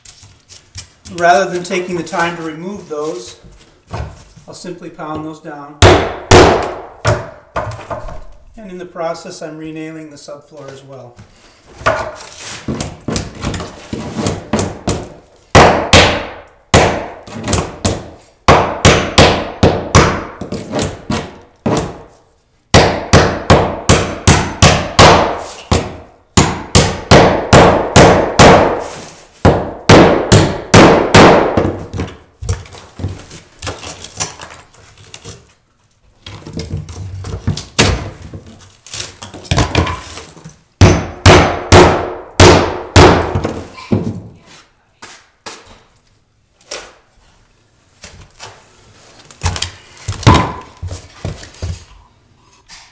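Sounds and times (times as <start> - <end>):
hammer pounding nails into plywood: 5.8 - 8.0, 11.8 - 22.1, 22.7 - 32.7, 36.4 - 38.5, 39.3 - 44.3, 49.4 - 51.8.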